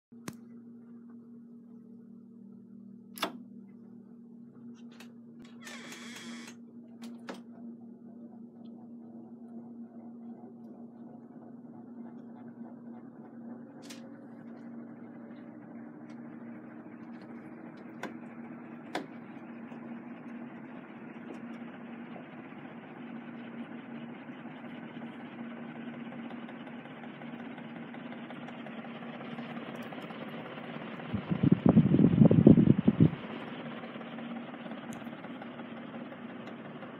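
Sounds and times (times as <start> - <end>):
ceiling fan motor hum: 0.2 - 36.9
rush of air from fan blades: 30.3 - 36.9.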